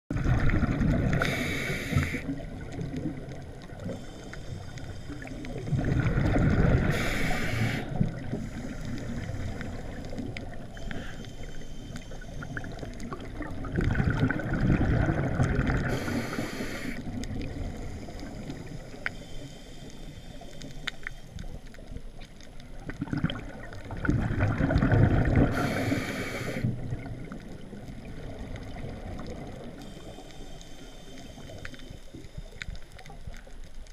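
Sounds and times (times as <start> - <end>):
exhaled bubbles gurgling: 0.1 - 19.0, 21.4 - 33.8
regulator inhalation hiss: 1.1 - 2.4, 3.8 - 5.7, 6.8 - 10.0, 10.7 - 12.8, 15.8 - 21.3, 25.5 - 26.8, 29.8 - 32.6
faint clicks: 1.1 - 6.3, 7.1 - 14.2, 15.4 - 23.9, 25.8 - 33.9.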